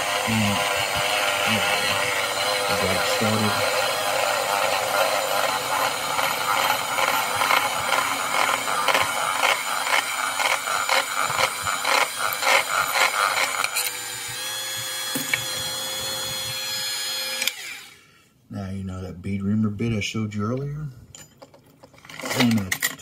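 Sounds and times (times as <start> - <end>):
cut-off disc grinding metal: 0.0 - 17.9
small motor whining: 0.0 - 18.1.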